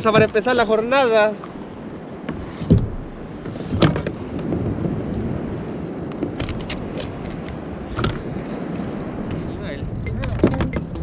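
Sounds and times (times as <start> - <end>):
wind buffeting microphone: 0.0 - 11.0
sharp knock: 10.1 - 11.0.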